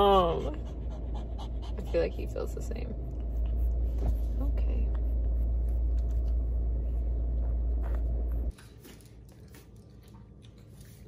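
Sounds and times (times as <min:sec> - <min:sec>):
low rumble inside car: 0:00.0 - 0:08.5
puppy chewing: 0:07.3 - 0:11.0.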